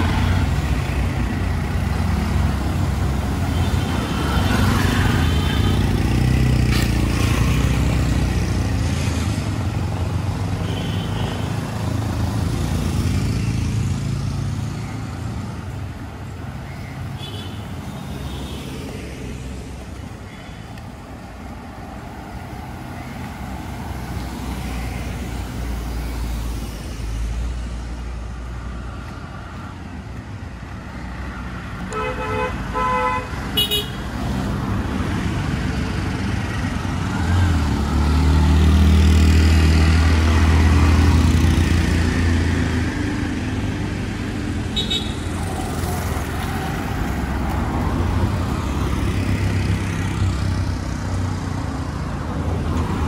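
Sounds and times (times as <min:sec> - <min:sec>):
vehicle engines passing: 0:00.0 - 0:53.0
car horn toots: 0:31.9 - 0:34.0.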